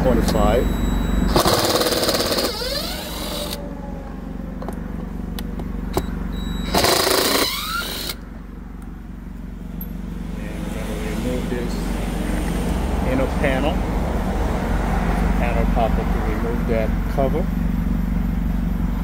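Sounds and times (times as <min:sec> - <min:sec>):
power driver whirring: 0:00.2 - 0:03.6, 0:05.4 - 0:08.2.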